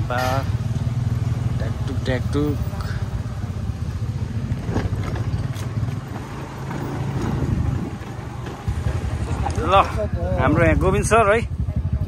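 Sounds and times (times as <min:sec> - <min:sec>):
wind buffeting microphone: 0:04.6 - 0:12.0.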